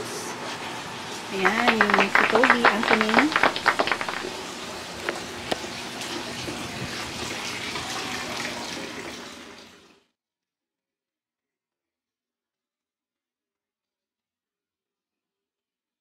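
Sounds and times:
rushing splashing water: 1.4 - 9.6.

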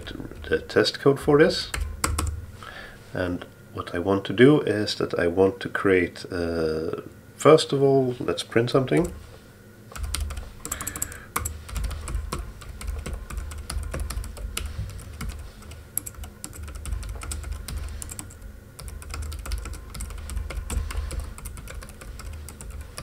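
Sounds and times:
keyboard typing: 1.3 - 2.4, 9.9 - 23.0.

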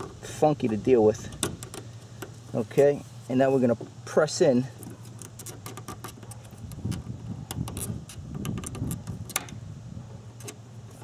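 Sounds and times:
plastic tool clicks and scrapes: 4.8 - 9.6.

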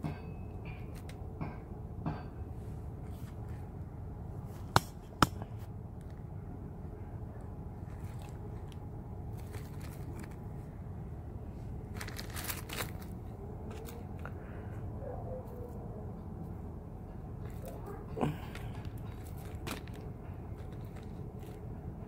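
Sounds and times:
plastic bags rustling: 7.8 - 10.7, 11.8 - 14.2, 17.4 - 21.7.

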